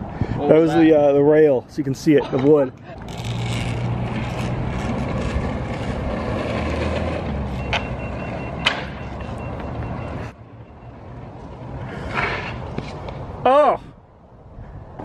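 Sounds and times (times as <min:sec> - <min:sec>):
skateboard wheels rolling on asphalt: 0:00.5 - 0:13.4
faint high beeping: 0:07.5 - 0:11.1.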